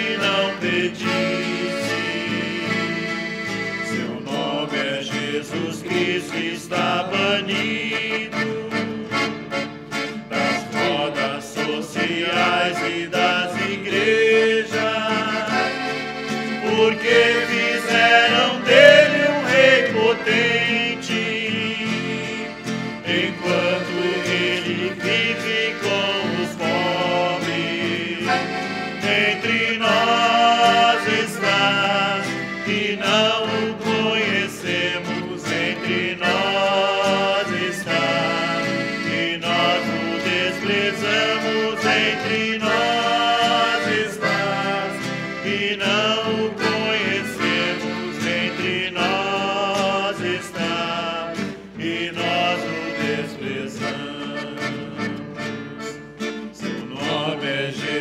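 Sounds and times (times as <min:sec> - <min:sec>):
accordion playing hymn melody: 0:00.0 - 0:58.0
strummed classical guitar: 0:00.0 - 0:58.0.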